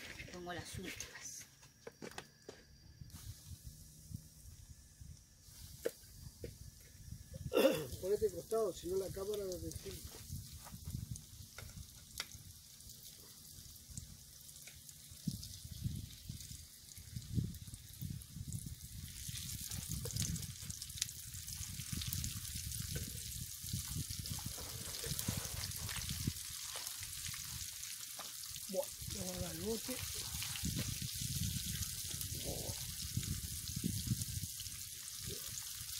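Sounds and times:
oil sizzling in a frying pan: 8.0s - 35.9s
small crackles: 9.2s - 18.0s, 19.0s - 33.4s.

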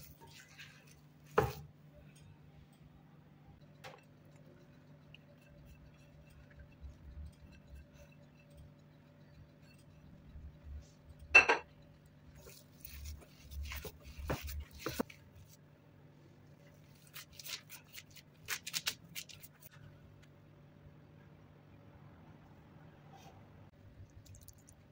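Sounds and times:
glass bowl knocking and clinking: 11.3s - 11.7s.

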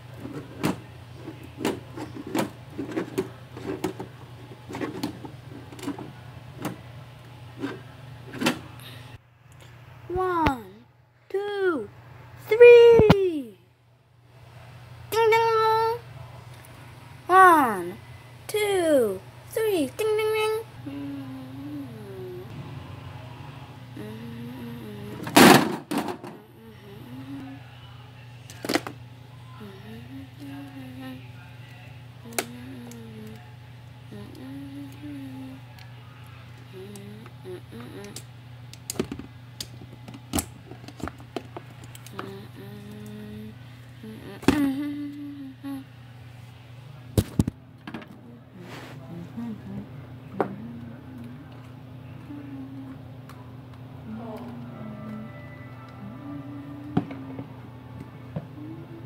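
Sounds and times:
low steady hum: 0.0s - 59.0s
person humming softly: 20.8s - 22.6s, 24.0s - 25.6s, 26.3s - 27.8s, 29.4s - 31.5s, 32.2s - 35.9s, 36.6s - 38.3s, 42.1s - 46.0s, 48.2s - 53.2s, 54.0s - 59.0s
plastic action figures knocking together: 25.4s - 26.4s.

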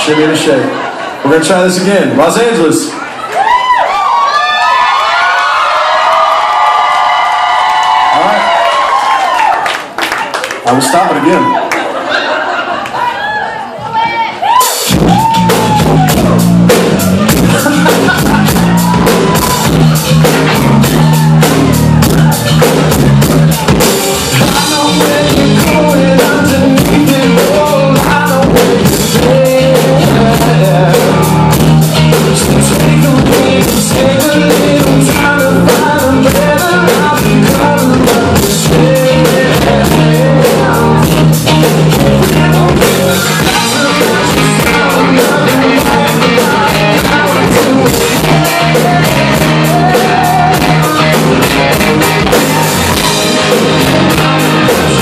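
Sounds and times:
live rock band playing: 0.0s - 3.3s, 14.0s - 55.0s
drum kit beat: 14.4s - 55.0s
man singing: 17.3s - 18.7s, 24.3s - 55.0s.

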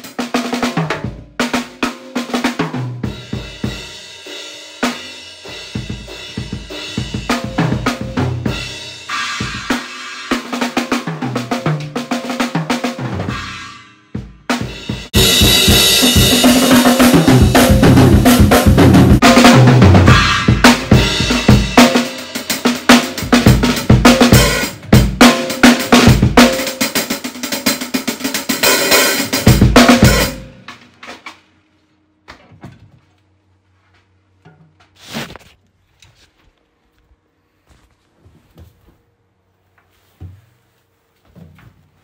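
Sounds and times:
acoustic drum kit playing: 0.0s - 31.4s.

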